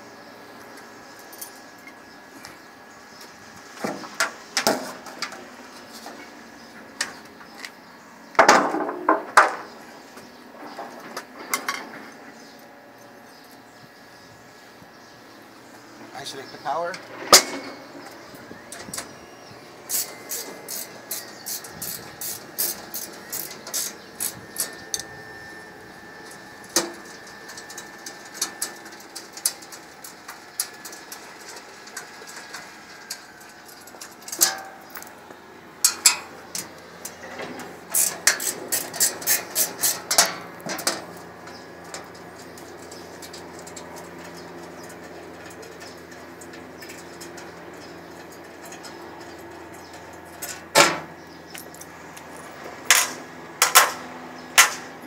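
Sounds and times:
wrench clicking on metal bolts: 0:37.9 - 0:40.3.

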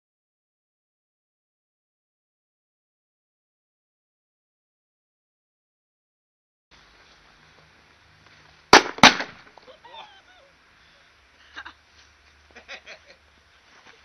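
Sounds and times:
firecracker bangs in a pipe: 0:08.7 - 0:09.6.

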